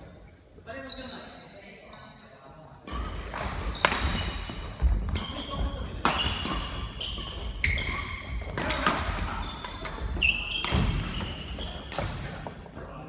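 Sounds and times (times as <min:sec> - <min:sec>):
shoes squeaking on boards: 0:02.9 - 0:12.3
rackets hitting shuttlecock: 0:02.9 - 0:12.6.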